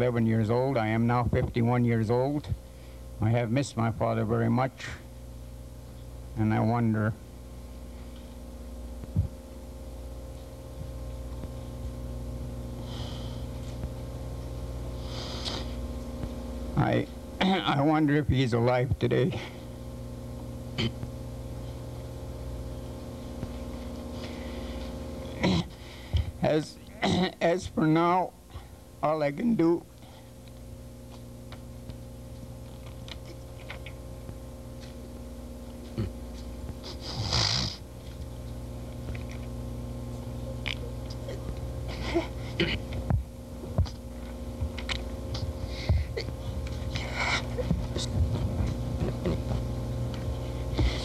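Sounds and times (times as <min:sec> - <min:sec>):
low electrical hum: 0:00.0 - 0:51.0
man weeping and sniffing: 0:41.9 - 0:42.9, 0:45.4 - 0:48.1.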